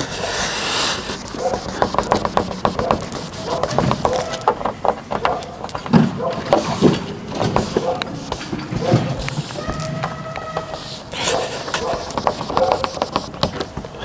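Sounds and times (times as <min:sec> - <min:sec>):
cloth rubbing sticker with squeaks: 0:01.0 - 0:04.6, 0:07.6 - 0:13.6.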